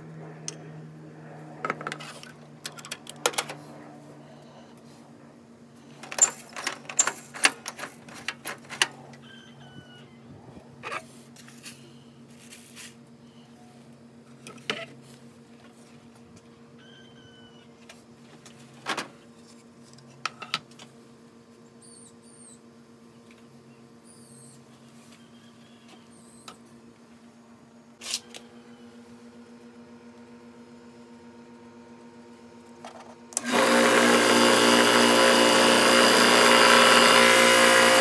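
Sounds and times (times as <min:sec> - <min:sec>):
low electrical hum: 0:00.0 - 0:38.0
faint high chirps: 0:16.8 - 0:17.7.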